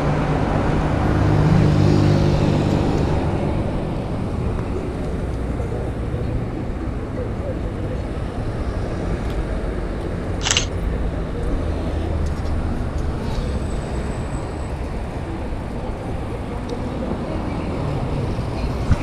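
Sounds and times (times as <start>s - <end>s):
city traffic rumble: 0.0s - 19.0s
camera shutter snap: 10.4s - 10.8s.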